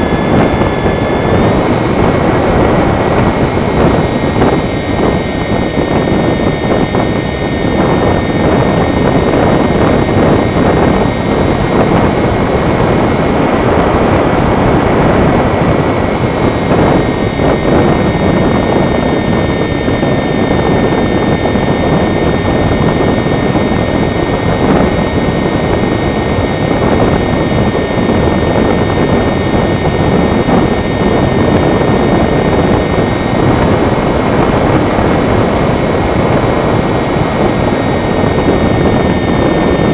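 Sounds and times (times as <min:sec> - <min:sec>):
electric motor high whine: 0:00.0 - 0:39.9
wind noise on microphone: 0:00.0 - 0:39.9.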